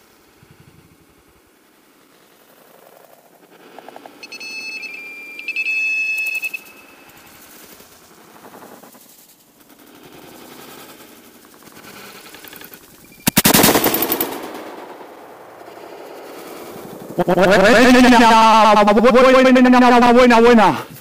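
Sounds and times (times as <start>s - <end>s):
rapid high electronic beeps: 4.2s - 7.3s, 13.0s - 14.2s.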